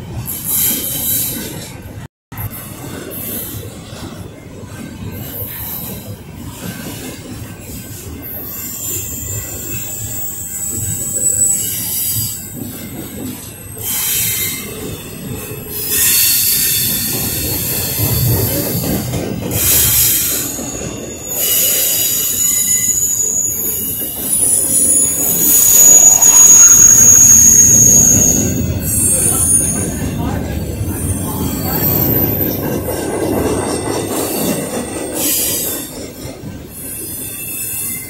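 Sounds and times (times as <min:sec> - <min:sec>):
train wheels rumbling on rails: 0:00.0 - 0:38.0
high wheel squeal: 0:08.3 - 0:12.8, 0:13.7 - 0:38.0.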